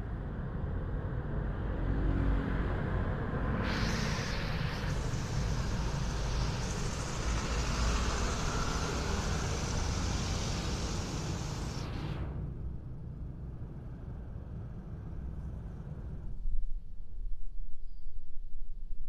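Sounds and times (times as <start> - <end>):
vehicle engine rumble: 0.0 - 17.4
loud even hiss: 3.5 - 12.4.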